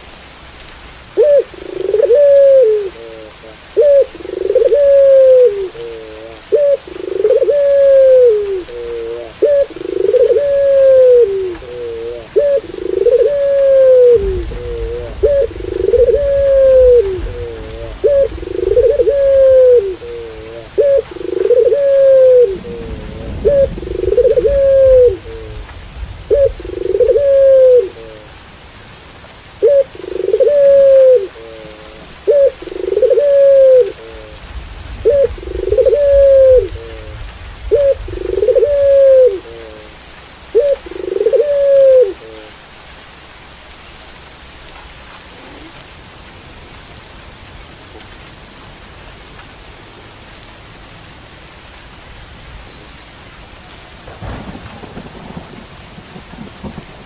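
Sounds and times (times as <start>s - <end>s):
steady rain: 0.0s - 57.0s
dove cooing: 1.2s - 28.4s, 29.6s - 42.6s, 45.4s - 45.8s.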